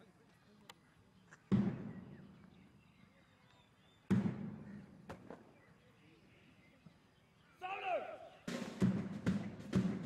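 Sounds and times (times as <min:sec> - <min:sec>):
bass drum beats: 0:08.5 - 0:10.0.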